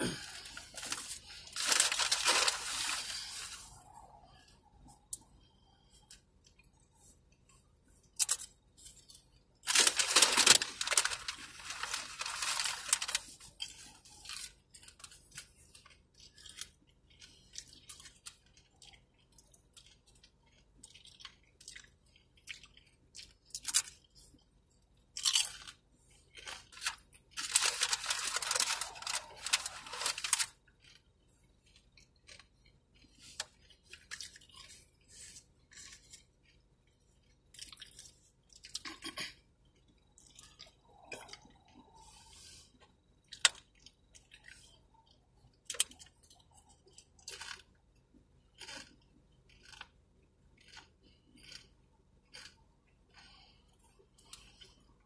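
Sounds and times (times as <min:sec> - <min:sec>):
chips crunching: 0:00.0 - 0:03.6, 0:08.2 - 0:24.1, 0:25.1 - 0:31.1, 0:45.7 - 0:47.8, 0:48.4 - 0:50.0, 0:50.6 - 0:51.7, 0:52.3 - 0:52.6
small crackles: 0:00.0 - 0:55.0.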